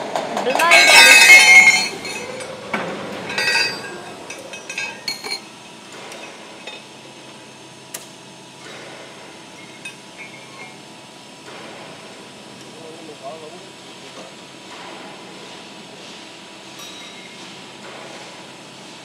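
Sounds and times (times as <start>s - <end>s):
steel knives clinking: 0.6s - 2.5s, 3.3s - 5.4s.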